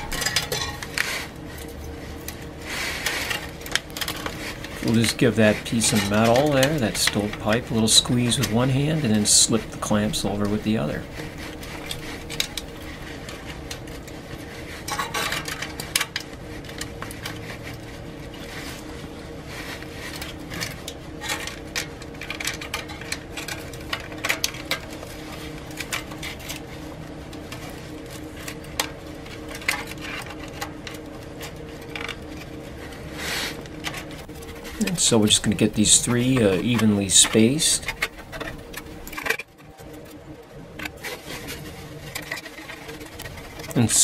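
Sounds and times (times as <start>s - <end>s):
metal clamps clinking and scraping: 0.0s - 1.2s, 3.0s - 12.6s, 14.8s - 17.4s
steady low hum: 0.0s - 44.0s.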